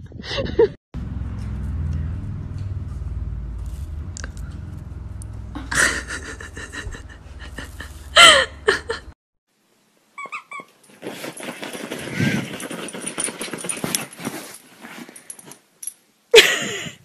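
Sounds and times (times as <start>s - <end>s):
low rumble: 0.2s - 9.1s.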